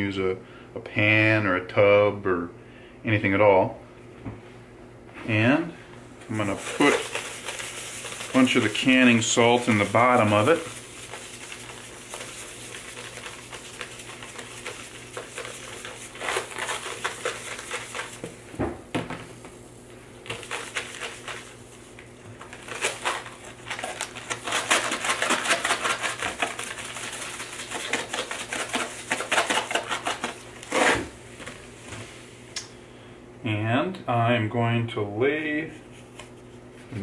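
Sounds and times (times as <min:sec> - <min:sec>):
salt pouring into container: 0:06.3 - 0:18.2, 0:20.3 - 0:21.8, 0:22.5 - 0:30.1.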